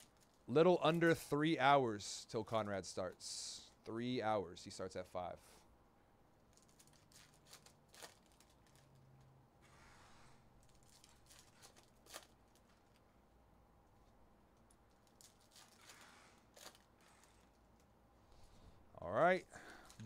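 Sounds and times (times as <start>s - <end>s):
trading cards rustling and clicking: 0.0s - 1.2s, 6.4s - 9.9s, 10.6s - 13.0s, 14.0s - 18.0s.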